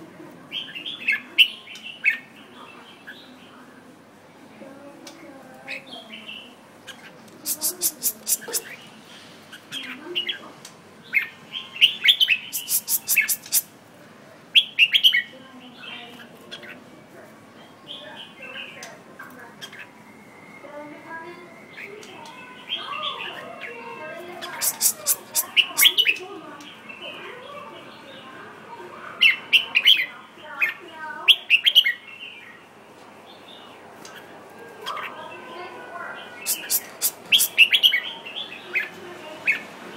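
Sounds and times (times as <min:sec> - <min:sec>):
sharp high bird ticks: 0:07.3 - 0:08.7, 0:12.5 - 0:13.7, 0:24.5 - 0:26.1, 0:36.5 - 0:37.6
bird singing chirpy notes: 0:07.4 - 0:08.8, 0:12.2 - 0:13.7, 0:24.4 - 0:26.2, 0:36.3 - 0:38.1.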